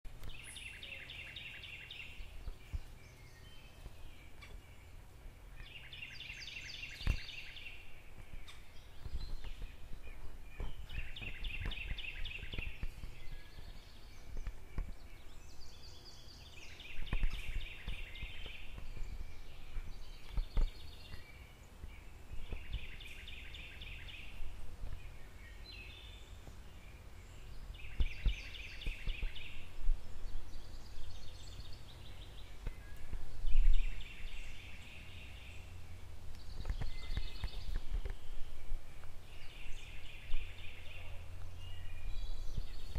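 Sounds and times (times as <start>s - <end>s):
songbird trilling: 0.2s - 21.6s.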